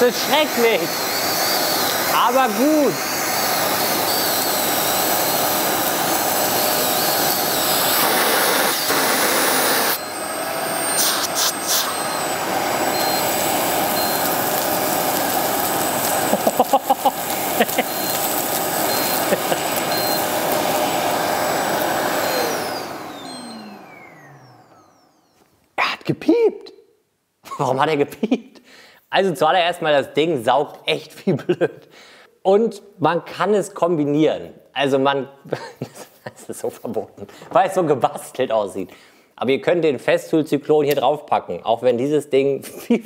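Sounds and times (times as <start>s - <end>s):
vacuum cleaner running: 0.0s - 25.5s
motor winding down whine: 0.6s - 25.4s
wood chips rattling through hose: 13.8s - 20.6s.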